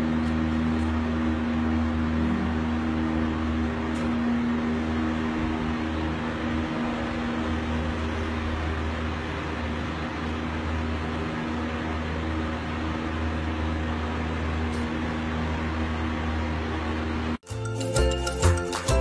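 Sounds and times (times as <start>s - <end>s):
machine hum with hiss: 0.0s - 19.0s.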